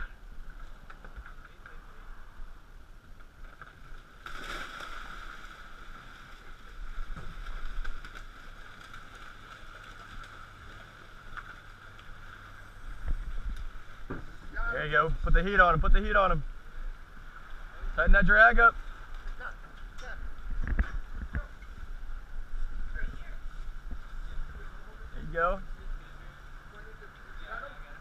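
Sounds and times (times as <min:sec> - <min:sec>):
background hum: 0:00.0 - 0:28.0
water splashing: 0:03.3 - 0:14.7.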